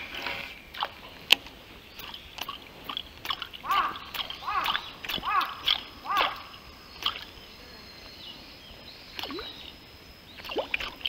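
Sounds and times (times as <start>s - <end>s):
bird calling: 0.0s - 11.0s
lure splashing on water: 0.8s - 7.4s, 9.2s - 9.7s, 10.4s - 11.0s.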